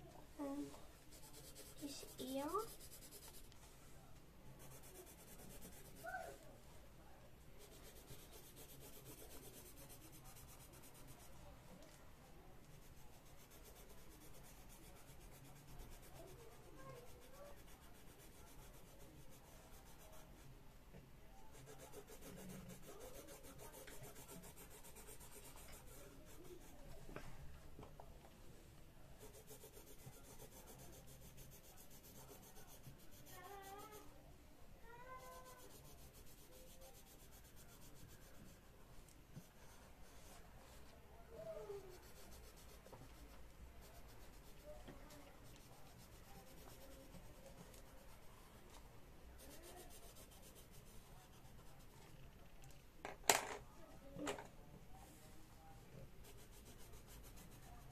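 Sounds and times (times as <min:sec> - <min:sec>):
pencil scratching on paper: 0:01.0 - 0:03.6, 0:04.6 - 0:06.4, 0:07.6 - 0:11.5, 0:12.6 - 0:20.5, 0:21.5 - 0:27.0, 0:29.2 - 0:34.1, 0:35.1 - 0:38.6, 0:39.4 - 0:40.9, 0:41.7 - 0:48.3, 0:49.4 - 0:52.2, 0:56.2 - 0:57.9.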